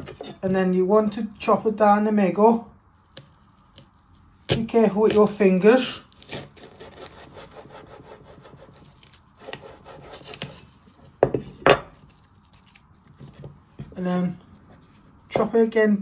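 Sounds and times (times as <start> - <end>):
knife sawing through onion: 6.1 - 10.8.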